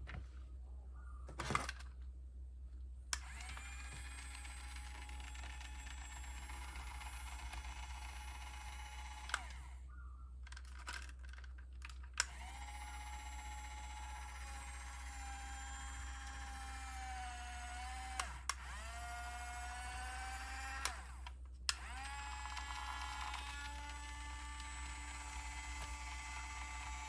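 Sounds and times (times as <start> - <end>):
small gear motor whining: 3.2 - 9.8, 12.2 - 27.0.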